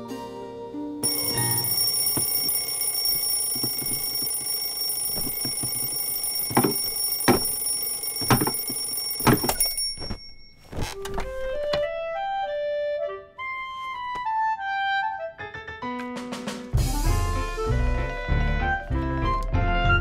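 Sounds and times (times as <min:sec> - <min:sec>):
alarm clock ringing: 0:01.0 - 0:10.6
broom knocking on clock: 0:03.4 - 0:09.5.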